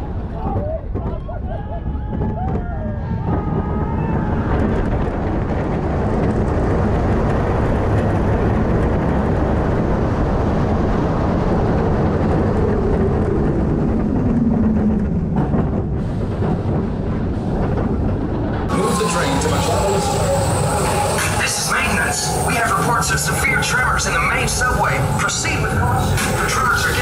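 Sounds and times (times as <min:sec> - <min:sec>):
roller coaster train running: 0:00.0 - 0:27.0
wind rush: 0:00.0 - 0:27.0
falling whine of brakes: 0:18.7 - 0:24.1.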